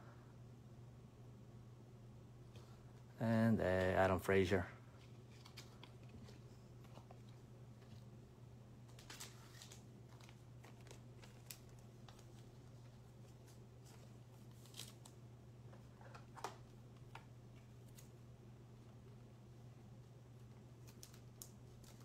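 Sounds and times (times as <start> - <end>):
steady low hum: 0.0 - 22.0
trading cards rustling: 5.0 - 8.2, 8.8 - 15.2, 20.7 - 22.0.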